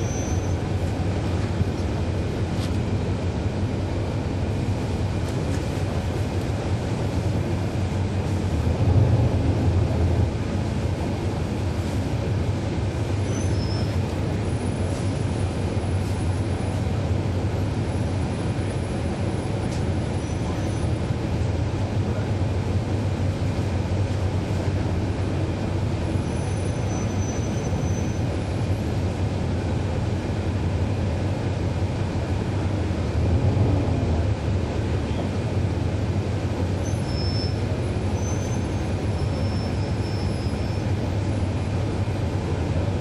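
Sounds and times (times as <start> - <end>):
bus diesel engine drone: 0.0 - 43.0
road rumble: 0.0 - 43.0.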